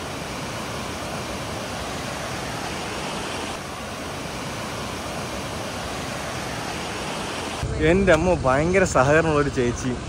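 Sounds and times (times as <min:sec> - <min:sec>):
river rushing over rapids: 0:00.0 - 0:07.6.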